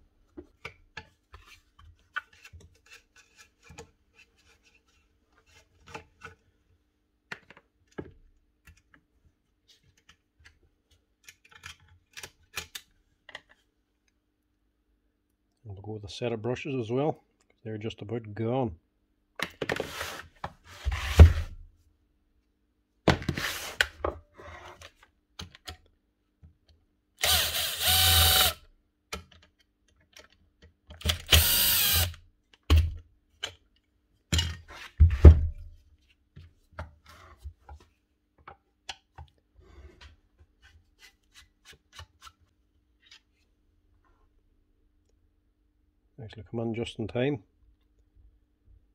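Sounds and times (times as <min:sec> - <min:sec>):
cordless drill spinning screws: 0:27.2 - 0:28.6, 0:31.1 - 0:32.2.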